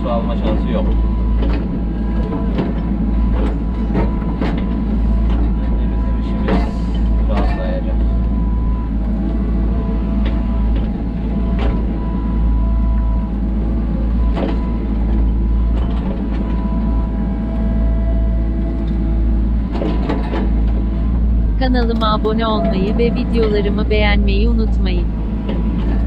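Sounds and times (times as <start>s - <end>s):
excavator diesel engine running: 0.0s - 26.0s
hydraulic whine: 0.0s - 26.0s
excavator bucket clanks: 0.4s - 8.2s, 19.6s - 23.9s.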